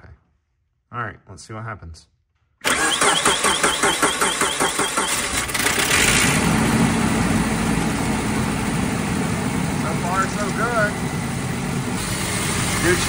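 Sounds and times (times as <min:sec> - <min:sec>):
car engine cranking and starting: 0:02.6 - 0:13.0.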